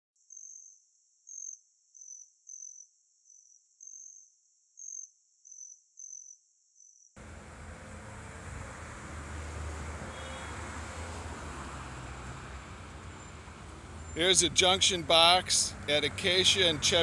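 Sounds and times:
cricket chirping: 0.2s - 7.2s
outdoor rumble and hiss: 7.2s - 17.0s.

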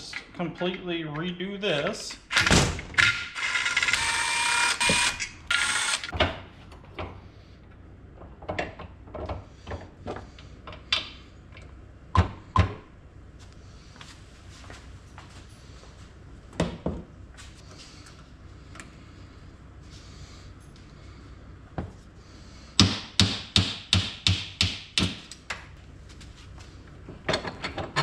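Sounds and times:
cordless drill running: 3.2s - 6.1s.

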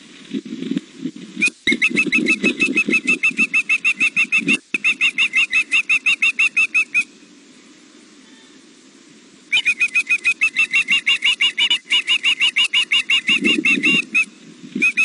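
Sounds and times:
bird piping chirps: 1.4s - 7.2s, 9.5s - 15.0s.

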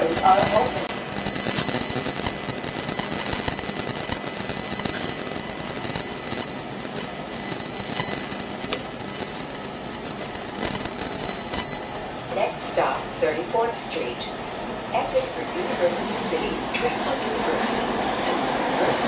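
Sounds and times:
high-pitched whine: 0.0s - 13.3s.

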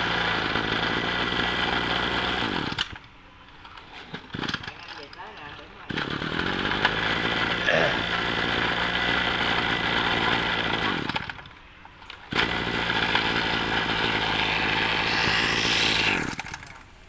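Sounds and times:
brush cutter engine idling: 0.0s - 2.9s, 5.9s - 11.4s, 12.3s - 16.8s.

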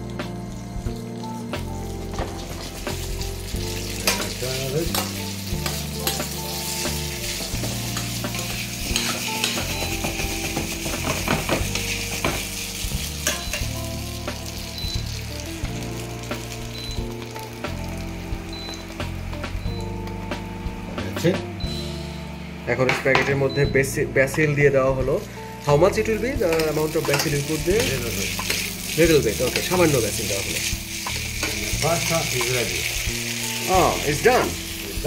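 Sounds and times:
spaghetti sizzling in pan: 0.5s - 19.2s, 25.2s - 35.0s
fork scraping pan: 8.0s - 9.8s, 27.0s - 29.9s.

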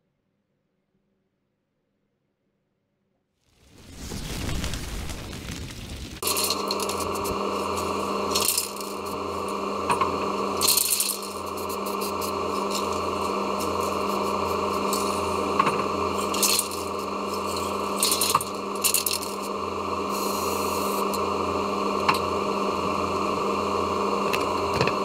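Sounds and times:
steady hum: 3.9s - 25.0s
spray cans clicking and rattling: 8.3s - 8.9s, 17.5s - 19.4s.

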